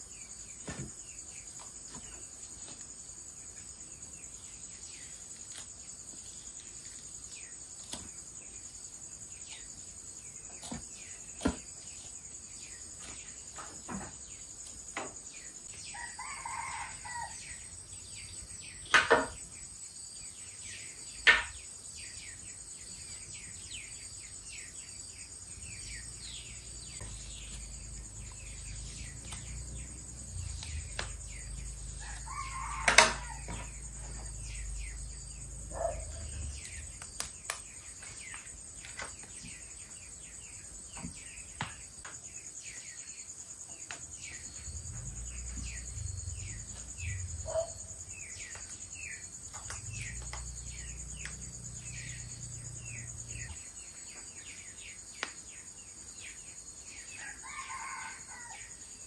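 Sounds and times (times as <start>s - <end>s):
insects droning: 0.0s - 59.0s
rooster crowing: 15.9s - 17.5s, 31.4s - 34.2s, 57.2s - 58.8s.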